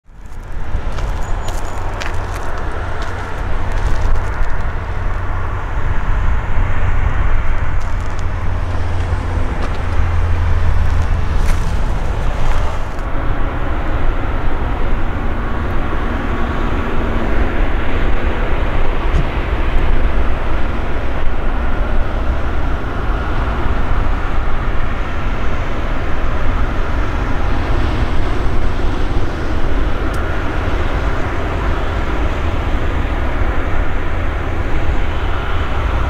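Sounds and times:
jet engines rumbling: 0:00.0 - 0:36.0.

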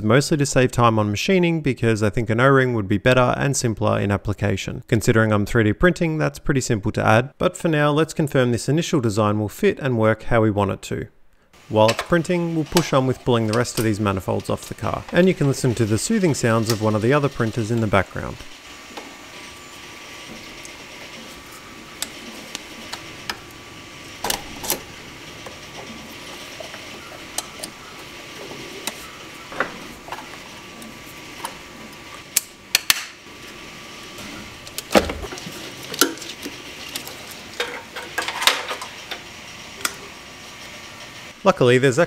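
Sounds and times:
three d printer whine: 0:11.6 - 0:41.8.

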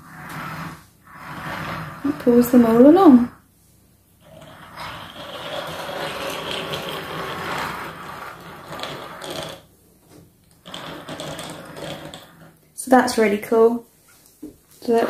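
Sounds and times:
plastic wheels rattling on wood: 0:04.2 - 0:09.7, 0:10.5 - 0:12.5.

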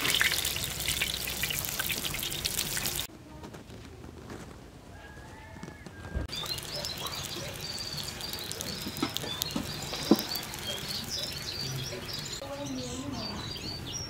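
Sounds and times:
birds chirping: 0:00.0 - 0:03.1, 0:05.4 - 0:14.0
flatbread crackling in hot oil: 0:00.0 - 0:03.1, 0:06.3 - 0:12.4.

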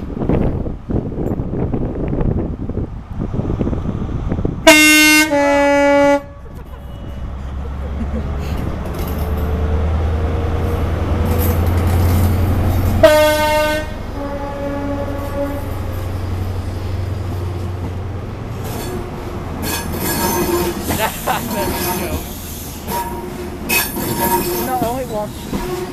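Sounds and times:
diesel train engine humming: 0:00.0 - 0:25.9
train horn two notes: 0:04.6 - 0:06.4, 0:13.0 - 0:15.8, 0:22.9 - 0:24.7, 0:25.5 - 0:25.9
train wheels rolling past: 0:06.4 - 0:25.9.

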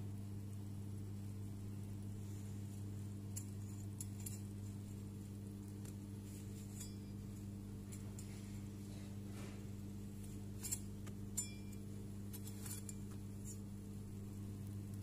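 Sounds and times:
steady low hum: 0:00.0 - 0:15.0
metal spatula clinking on plate: 0:10.6 - 0:11.8.

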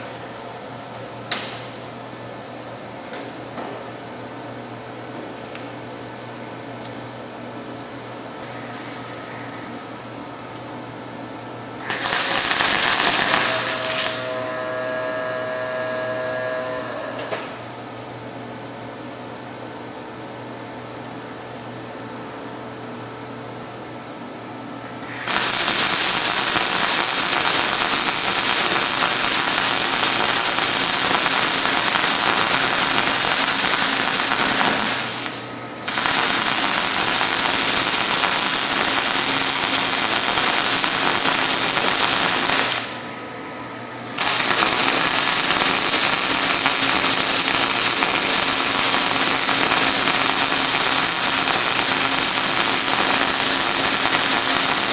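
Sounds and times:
welding arc crackling sizzle: 0:11.8 - 0:17.5, 0:25.0 - 0:54.9
welder humming: 0:11.8 - 0:17.6, 0:25.0 - 0:54.9.

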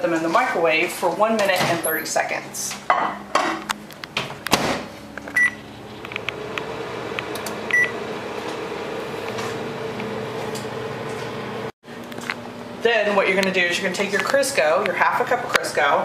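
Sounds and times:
microwave oven humming: 0:03.2 - 0:16.0
short keypad beeps: 0:05.4 - 0:05.6, 0:07.7 - 0:07.9.

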